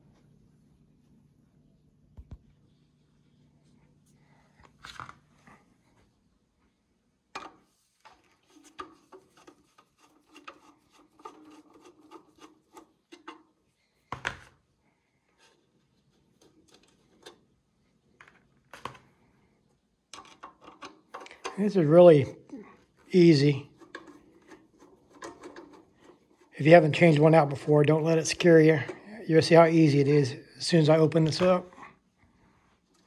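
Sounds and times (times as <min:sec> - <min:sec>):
screwdriver scraping: 0:08.4 - 0:13.5, 0:23.7 - 0:26.6.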